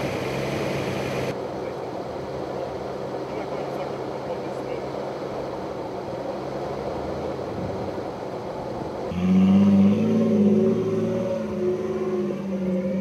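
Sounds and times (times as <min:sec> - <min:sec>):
engine idling: 0:00.0 - 0:13.0
off-road vehicle driving past: 0:09.0 - 0:13.0.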